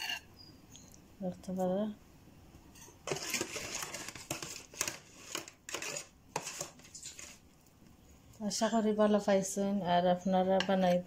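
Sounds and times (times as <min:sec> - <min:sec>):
foil tray crinkling and scraping: 0:03.0 - 0:07.4.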